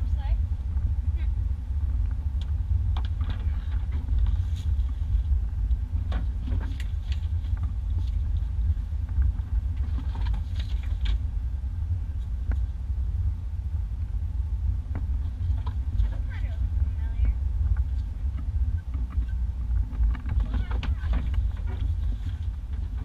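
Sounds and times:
vehicle engine and road rumble: 0:00.0 - 0:23.0
knocks and rattles over bumps: 0:02.0 - 0:11.3, 0:14.9 - 0:23.0.

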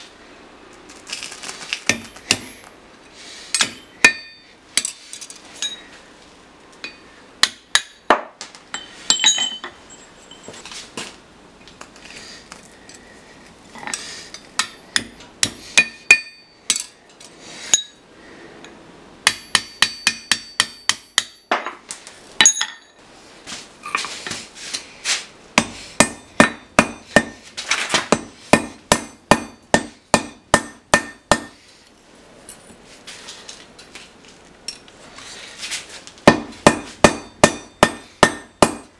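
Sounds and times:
hammer striking metal on anvil: 0:03.5 - 0:05.0, 0:06.8 - 0:09.8, 0:14.6 - 0:17.0, 0:19.2 - 0:21.8, 0:25.6 - 0:27.4, 0:28.1 - 0:31.6, 0:36.3 - 0:38.9
thin metallic ring: 0:08.7 - 0:10.7.

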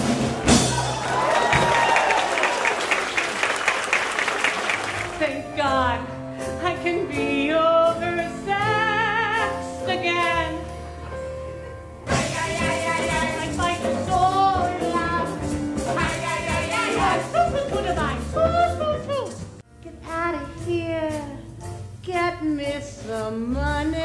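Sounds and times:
quick percussion: 0:12.1 - 0:22.8.

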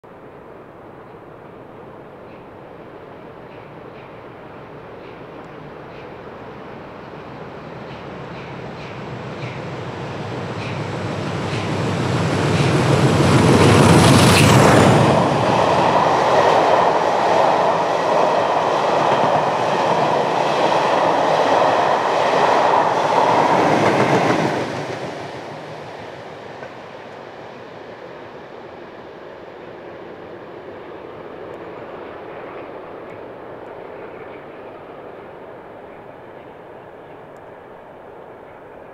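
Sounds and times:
diesel locomotive passing: 0:00.1 - 0:38.9
train wheels on rails: 0:02.1 - 0:38.9.

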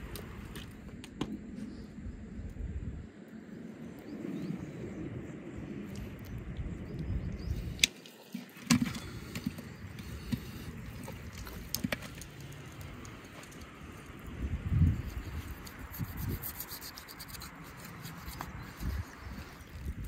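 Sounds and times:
low steady rumble: 0:00.0 - 0:07.9, 0:08.8 - 0:20.0.

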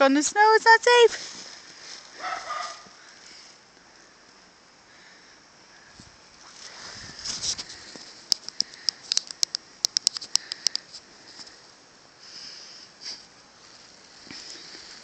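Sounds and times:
paws scraping crunchy snow: 0:01.1 - 0:03.4
soft rustling: 0:01.1 - 0:03.6, 0:06.0 - 0:08.9.

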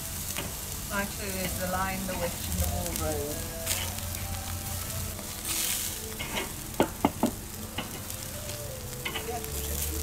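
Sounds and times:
food sizzling on grill: 0:00.0 - 0:10.0
metal tongs clacking: 0:07.7 - 0:08.1, 0:09.0 - 0:09.3.

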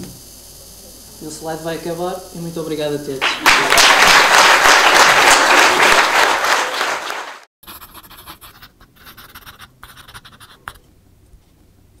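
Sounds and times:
audience applause: 0:03.2 - 0:07.5
pencil scribbling: 0:07.6 - 0:10.8.

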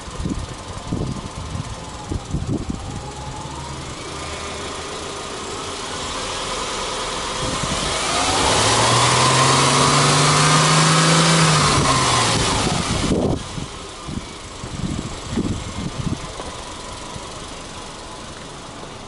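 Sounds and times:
car engine revving: 0:01.4 - 0:18.8.

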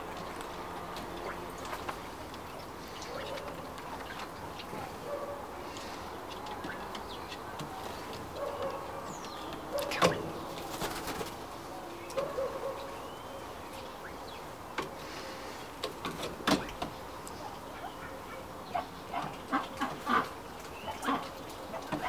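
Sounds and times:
faint bird chirp: 0:11.7 - 0:15.7.

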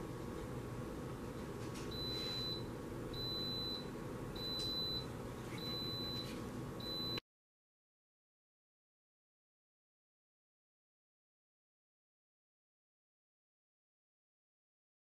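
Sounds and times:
low steady hum: 0:00.0 - 0:07.2
high-pitched appliance beeps: 0:01.9 - 0:07.2.

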